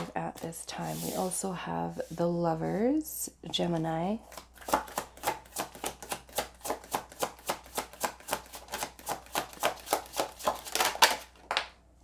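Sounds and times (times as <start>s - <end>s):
cards being shuffled: 4.2s - 11.7s.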